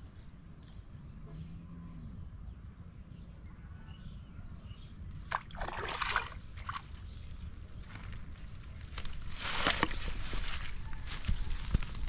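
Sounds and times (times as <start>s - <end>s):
fish splashing in water: 5.3s - 7.0s.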